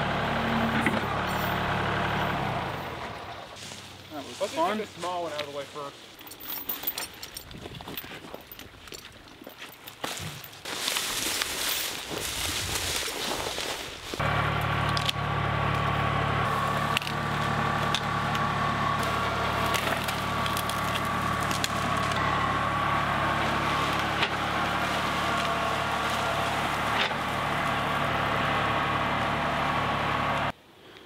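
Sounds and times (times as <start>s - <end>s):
diesel tractor engine running: 0.0s - 5.3s, 14.0s - 30.6s
wood snapping: 16.8s - 22.2s, 23.9s - 27.2s.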